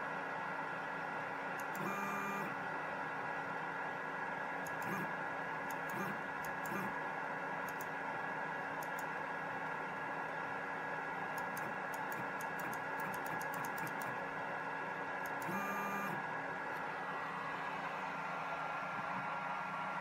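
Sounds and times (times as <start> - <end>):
electrical hiss and hum: 0.0 - 20.0
stepper motor whine: 1.6 - 2.6, 4.6 - 7.0, 15.2 - 20.0
light clicks: 7.6 - 7.9, 8.8 - 9.1.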